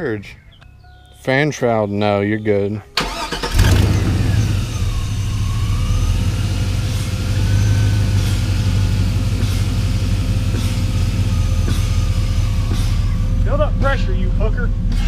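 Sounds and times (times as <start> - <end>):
pickup engine idling: 3.0 - 15.0.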